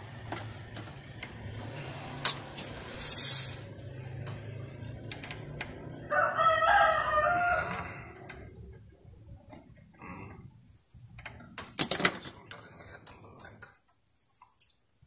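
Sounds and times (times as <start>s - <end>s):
rooster crowing: 5.9s - 8.3s.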